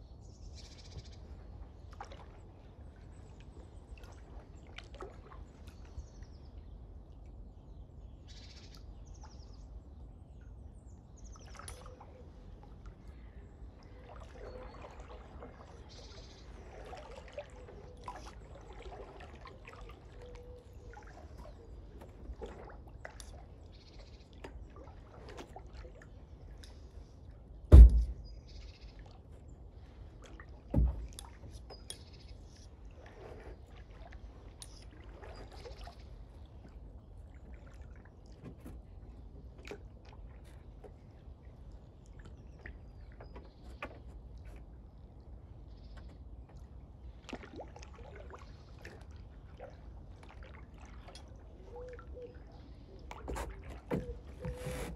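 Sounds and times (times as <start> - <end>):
faint water trickling: 0.0 - 54.9
heavy thumps: 27.7 - 28.2.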